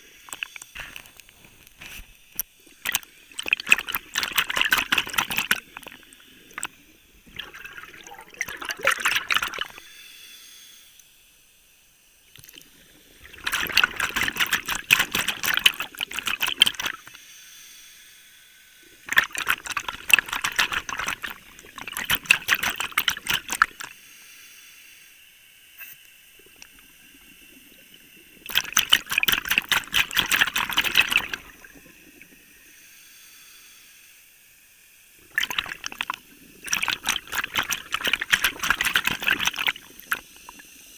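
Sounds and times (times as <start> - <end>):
exhaled bubbles rushing: 2.6 - 9.8, 12.4 - 17.2, 18.9 - 24.0, 26.4 - 32.6, 35.2 - 40.7
regulator inhale hiss: 9.8 - 11.4, 17.1 - 19.0, 23.9 - 25.5, 32.6 - 34.4.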